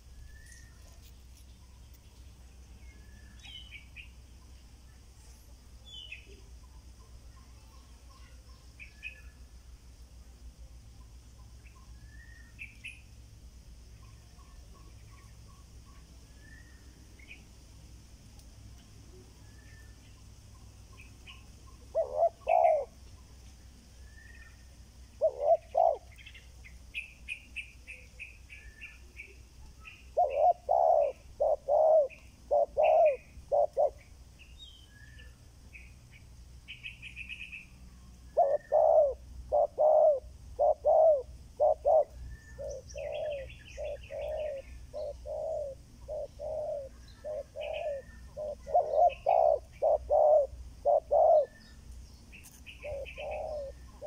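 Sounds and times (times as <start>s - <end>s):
small birds chirping: 0.0s - 54.0s
doves cooing: 21.7s - 23.0s, 25.1s - 26.2s, 30.1s - 34.1s, 38.3s - 51.8s, 52.8s - 54.0s.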